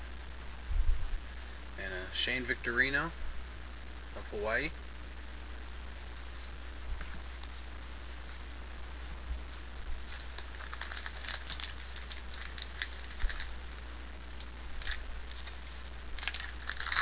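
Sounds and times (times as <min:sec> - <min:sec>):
wrapper and cards crinkling: 0:10.0 - 0:13.8, 0:14.4 - 0:17.0.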